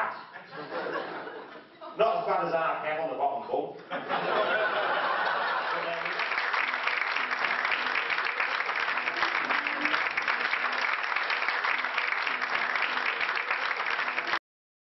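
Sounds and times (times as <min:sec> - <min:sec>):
audience clapping: 0:04.7 - 0:14.4.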